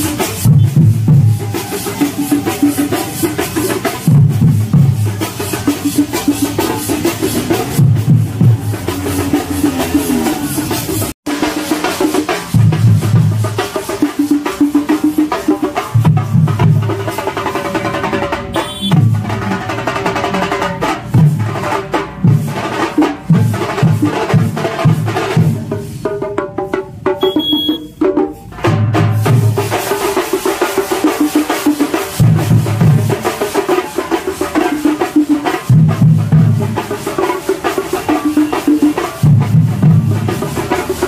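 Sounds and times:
marching drums fast rhythm: 0:00.0 - 0:41.0.

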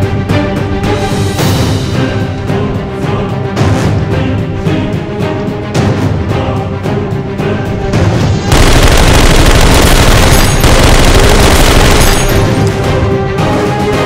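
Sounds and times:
background music: 0:00.0 - 0:14.0
toy blaster firing: 0:08.5 - 0:12.7
machine-gun fire sound effects: 0:08.5 - 0:13.0.

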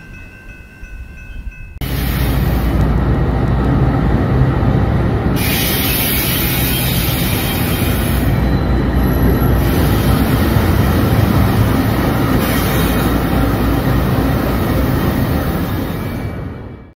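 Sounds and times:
diesel locomotives rumbling past: 0:00.0 - 0:16.9.

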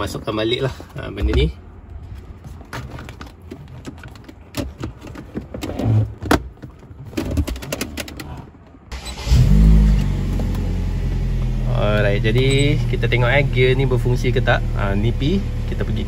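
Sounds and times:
car engine starting and idling: 0:08.0 - 0:16.0.

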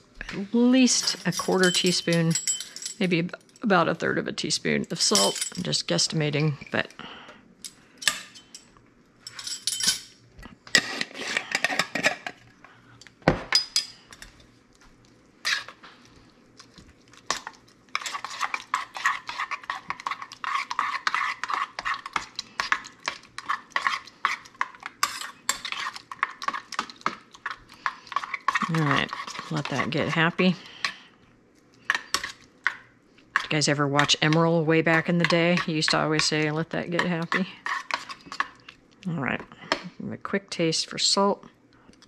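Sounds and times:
spoon stirring in metal bowl: 0:00.8 - 0:03.1, 0:05.0 - 0:05.8, 0:08.0 - 0:12.5, 0:13.5 - 0:14.6, 0:15.4 - 0:31.1, 0:31.8 - 0:38.8.

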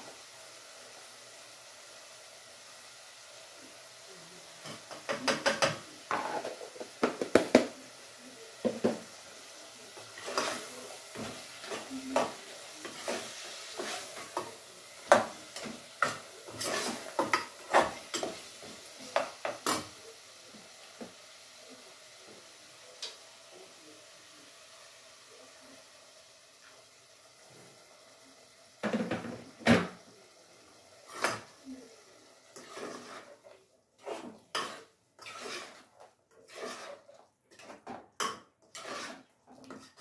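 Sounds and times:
faint sizzle: 0:00.0 - 0:40.0
metal spoon scraping a pot: 0:15.6 - 0:18.4, 0:32.6 - 0:33.3, 0:34.0 - 0:40.0.

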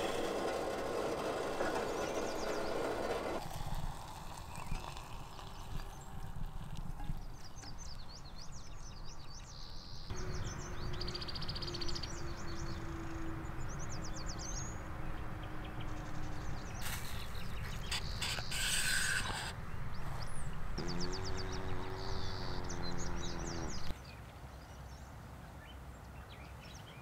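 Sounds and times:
small birds chirping: 0:04.4 - 0:25.8
burst of hiss: 0:16.8 - 0:19.5.

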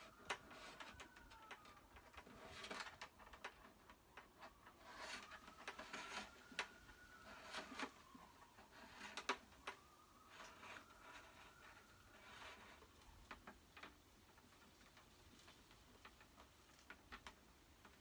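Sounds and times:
clicks and rustling of wire: 0:00.0 - 0:18.0.

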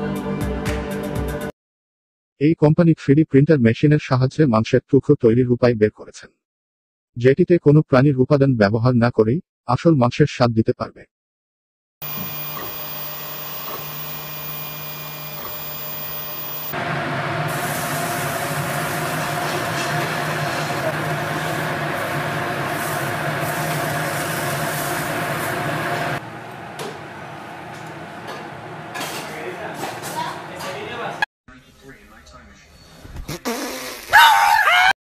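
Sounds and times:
patty frying with hiss and crackle: 0:12.0 - 0:16.7, 0:17.5 - 0:26.2
printer motor hum: 0:12.0 - 0:16.8.

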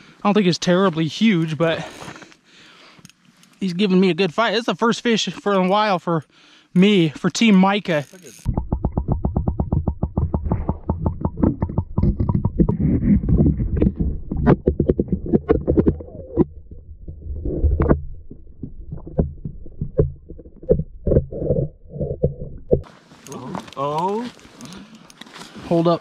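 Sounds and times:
muffled underwater clicks: 0:08.4 - 0:22.9
low underwater rumble: 0:08.5 - 0:22.9.

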